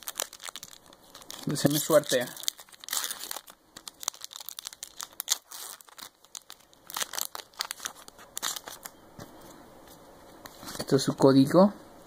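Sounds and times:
foil wrapper crinkling and tearing: 0.0 - 8.9.

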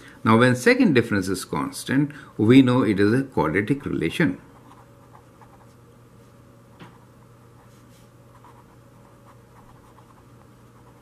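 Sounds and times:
low steady hum: 0.0 - 11.0
marker writing on paper: 8.4 - 10.2.

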